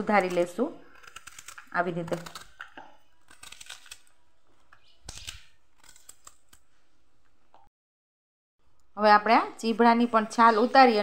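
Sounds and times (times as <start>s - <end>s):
knife slicing cabbage: 0.0s - 6.7s.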